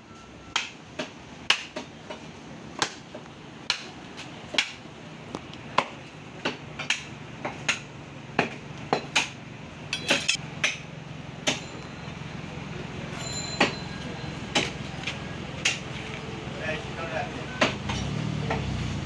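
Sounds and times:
cleaver chopping on wooden block: 0:00.6 - 0:02.2, 0:02.8 - 0:03.0, 0:03.7 - 0:03.9, 0:04.5 - 0:04.8, 0:05.7 - 0:09.4.

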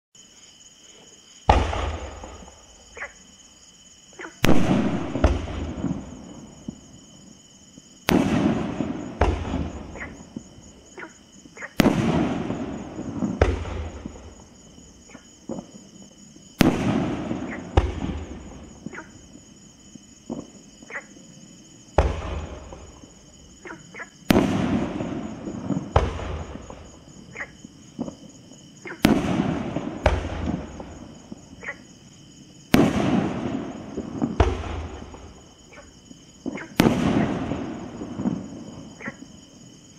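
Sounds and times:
small firework pops: 0:01.4 - 0:02.5, 0:04.4 - 0:06.0, 0:08.0 - 0:10.1, 0:11.7 - 0:14.3, 0:16.6 - 0:19.0, 0:22.0 - 0:23.0, 0:24.3 - 0:26.9, 0:28.9 - 0:31.0, 0:32.7 - 0:38.4
firework booms with crackle: 0:01.4 - 0:02.8, 0:04.4 - 0:07.4, 0:08.0 - 0:10.8, 0:11.7 - 0:14.8, 0:15.4 - 0:19.5, 0:20.2 - 0:20.6, 0:21.8 - 0:23.4, 0:24.2 - 0:31.6, 0:32.6 - 0:39.3.

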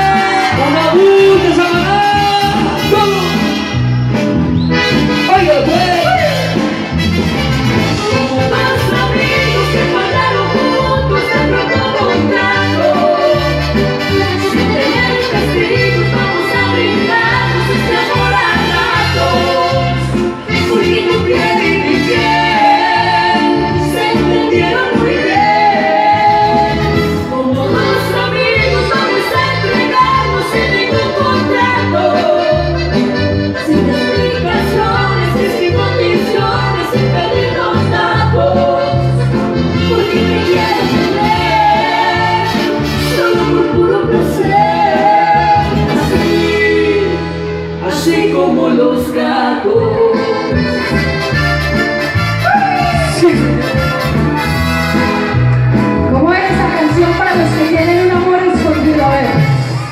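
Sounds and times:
person singing: 0:00.0 - 0:03.4, 0:08.0 - 0:13.8, 0:14.4 - 0:47.2
bass beat: 0:00.0 - 0:47.4, 0:49.8 - 0:59.9
live band playing: 0:00.0 - 0:59.9.

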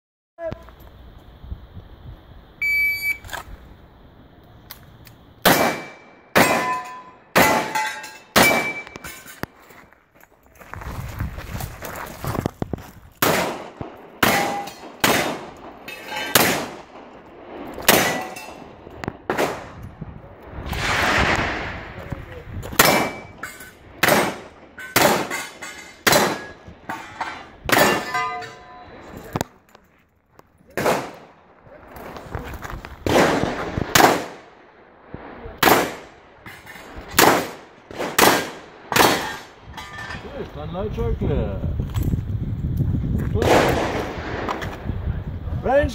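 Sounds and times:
revolver gunshots: 0:05.4 - 0:09.0, 0:13.2 - 0:19.8, 0:22.7 - 0:26.7, 0:30.8 - 0:31.4, 0:33.0 - 0:34.6, 0:35.5 - 0:36.3, 0:37.1 - 0:39.6, 0:43.4 - 0:44.6
steel target clang: 0:05.5 - 0:09.4, 0:14.2 - 0:16.7, 0:17.9 - 0:18.6, 0:22.8 - 0:29.1.

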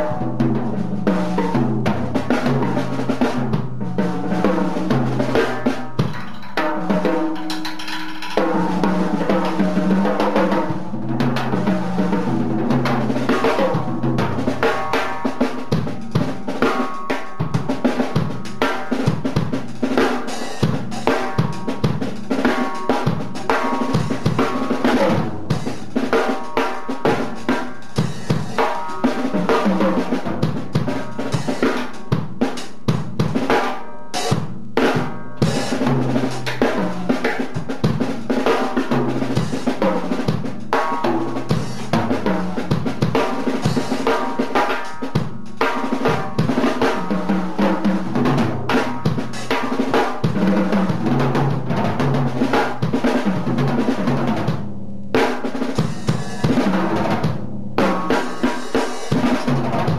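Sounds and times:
bass drum: 0:00.0 - 0:16.8
drum kit solo: 0:00.0 - 0:59.9.

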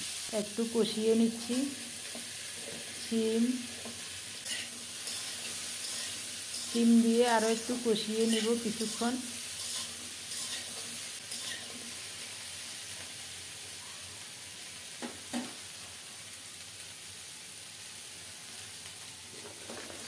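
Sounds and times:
vegetables sizzling in oil: 0:00.0 - 0:20.0
spatula scraping and stirring: 0:02.0 - 0:07.0, 0:08.2 - 0:11.9.

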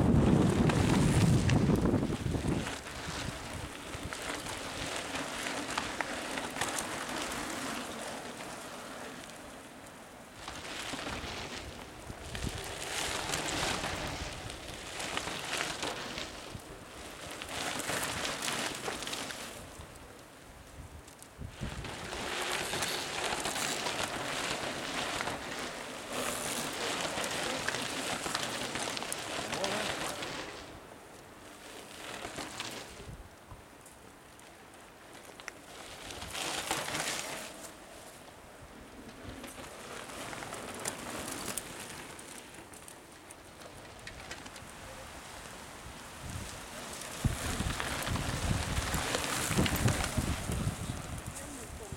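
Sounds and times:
wind buffeting microphone: 0:00.0 - 0:05.8, 0:11.0 - 0:15.6, 0:20.6 - 0:25.6, 0:44.0 - 0:51.9
bike tyres crunching over trail: 0:00.0 - 0:51.9.

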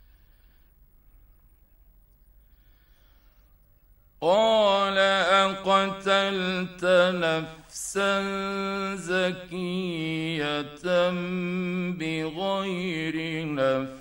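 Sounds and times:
short breaths: 0:00.0 - 0:00.8, 0:02.4 - 0:03.6
man chanting recitation: 0:04.2 - 0:14.0.

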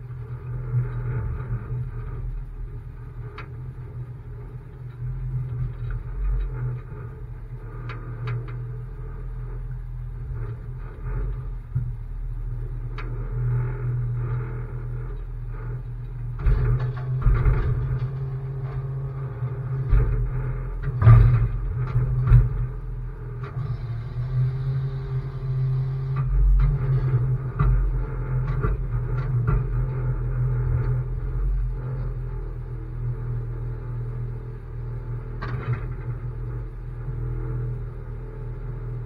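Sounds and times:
truck engine rumbling: 0:00.0 - 0:39.0
metal clanks and rattles: 0:16.2 - 0:23.5.

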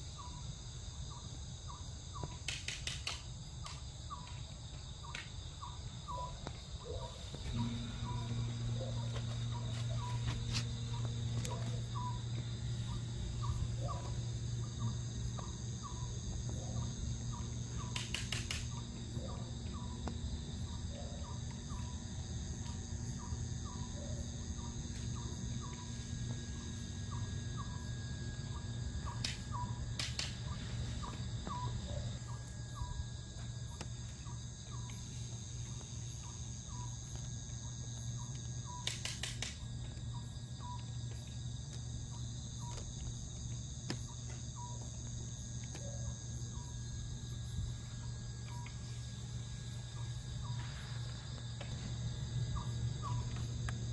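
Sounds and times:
insects trilling: 0:00.0 - 0:53.9
short insect chirp: 0:00.0 - 0:53.9
steady low hum: 0:00.0 - 0:53.9
sharp clicks: 0:02.4 - 0:03.8, 0:17.9 - 0:18.8, 0:30.0 - 0:30.4, 0:38.8 - 0:39.6.

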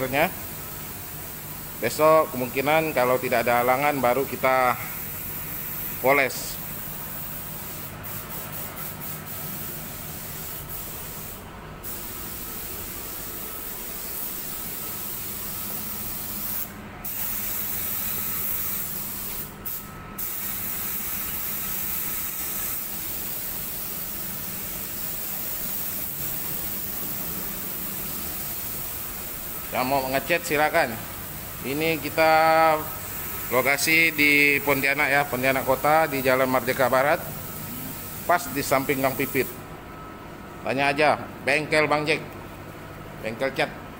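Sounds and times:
spray gun hissing: 0:00.0 - 0:39.6.

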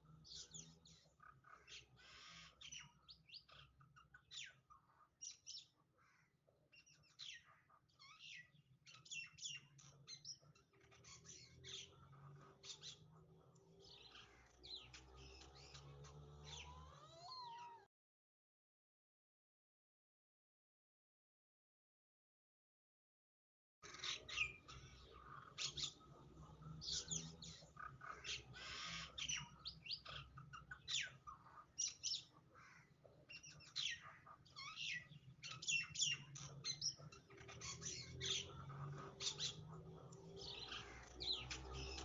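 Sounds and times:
small birds chirping: 0:00.0 - 0:17.9, 0:23.8 - 0:42.0.

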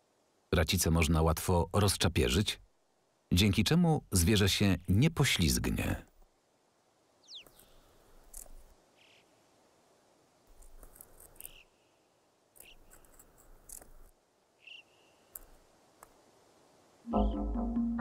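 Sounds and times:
bird chirps: 0:07.2 - 0:09.4, 0:11.3 - 0:13.2, 0:14.6 - 0:15.4
hooves clicking on rock: 0:12.6 - 0:14.1.

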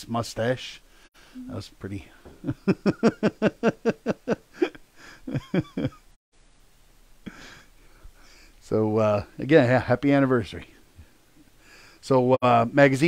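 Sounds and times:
man laughing heartily: 0:02.4 - 0:06.2.

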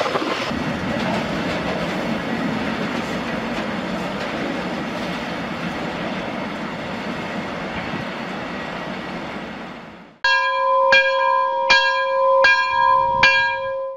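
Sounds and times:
freight train wheels rumbling: 0:00.0 - 0:10.2
bell-like chimes: 0:10.2 - 0:13.9.

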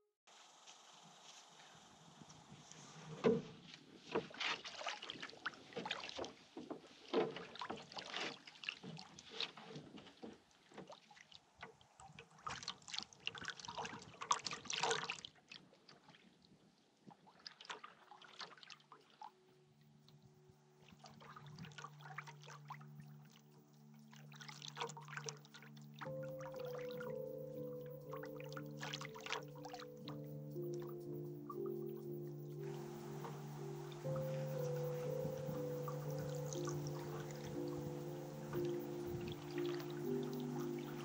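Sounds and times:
paddle splashing in water: 0:03.2 - 0:16.2, 0:17.2 - 0:19.3, 0:20.9 - 0:23.4, 0:24.1 - 0:31.7, 0:32.4 - 0:41.0
background music: 0:21.2 - 0:41.0
water dripping off paddle: 0:24.1 - 0:41.0.

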